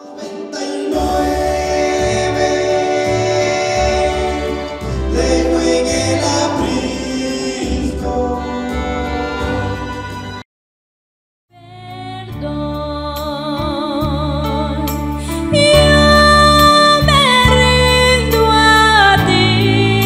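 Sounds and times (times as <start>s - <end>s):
person singing: 11.6s - 20.0s.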